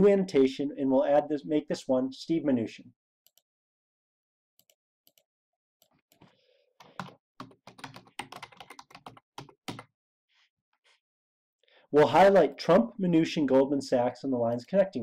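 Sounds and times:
typing on computer keyboard: 0:06.1 - 0:09.9.

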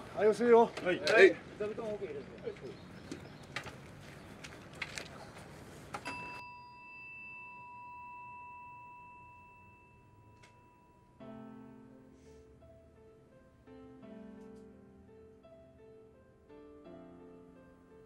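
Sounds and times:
bell bowl ringing: 0:06.1 - 0:11.3
soft instrumental music: 0:10.2 - 0:18.0.

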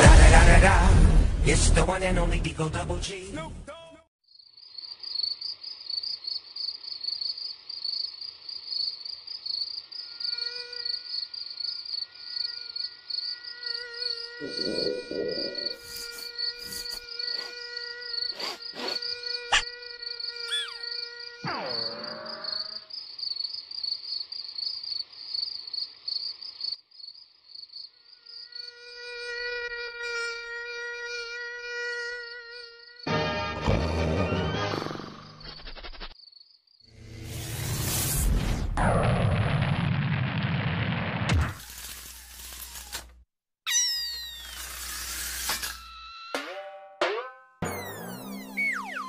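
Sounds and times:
mosquito buzzing: 0:04.3 - 0:23.6, 0:27.5 - 0:35.6, 0:43.7 - 0:46.4, 0:47.6 - 0:49.0
crickets chirping: 0:04.3 - 0:29.9, 0:36.2 - 0:37.0.

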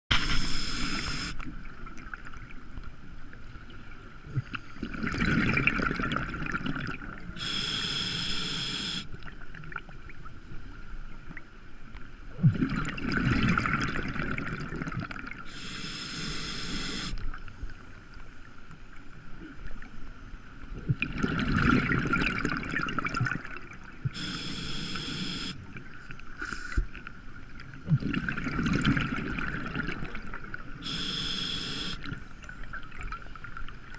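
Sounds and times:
regulator hissing inhales: 0:00.2 - 0:01.4, 0:07.4 - 0:09.1, 0:15.5 - 0:17.2, 0:24.2 - 0:25.6, 0:30.8 - 0:32.0
exhaled bubbles rushing: 0:04.8 - 0:07.2, 0:12.4 - 0:15.4, 0:20.9 - 0:23.8, 0:27.9 - 0:30.6.

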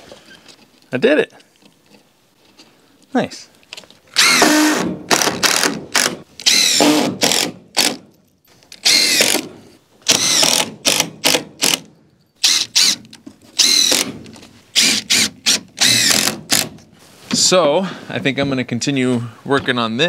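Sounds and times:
cordless drill driving screws: 0:04.1 - 0:08.0, 0:08.8 - 0:16.8.

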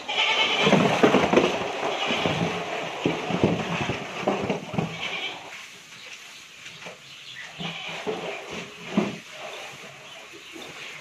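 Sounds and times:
farm animal bleating: 0:00.0 - 0:05.6, 0:07.4 - 0:08.7.

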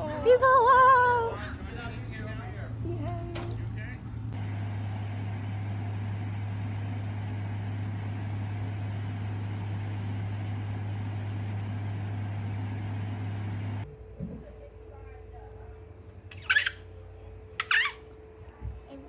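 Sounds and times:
continuous hiss: 0:00.0 - 0:04.4
low hum: 0:00.0 - 0:19.0.

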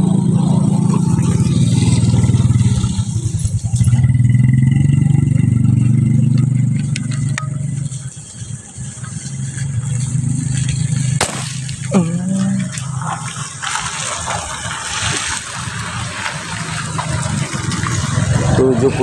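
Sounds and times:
air rifle shot: 0:11.2 - 0:11.8.

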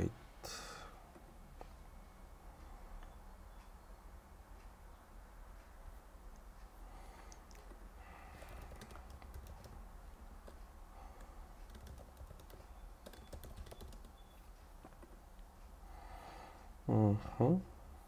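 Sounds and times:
low steady hum: 0:00.0 - 0:18.0
keyboard typing: 0:07.4 - 0:15.2.

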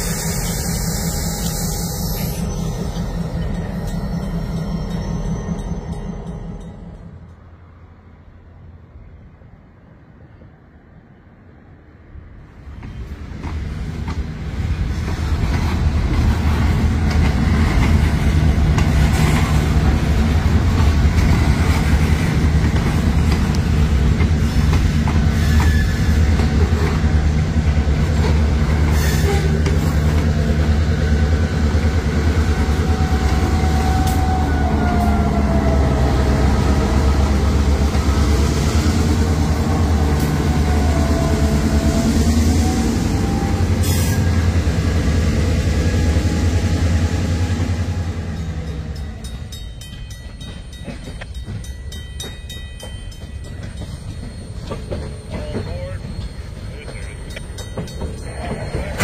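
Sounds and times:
freight train passing: 0:00.0 - 0:59.0
wheel squeal: 0:25.4 - 0:26.2.

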